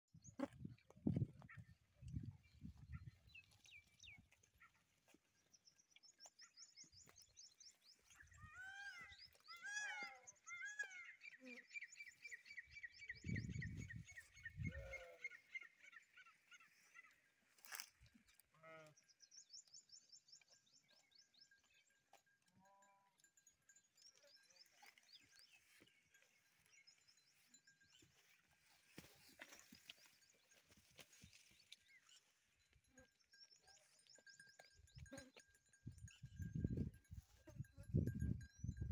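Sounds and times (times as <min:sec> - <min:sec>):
sheep bleating: 0:14.6 - 0:15.5, 0:18.5 - 0:19.0.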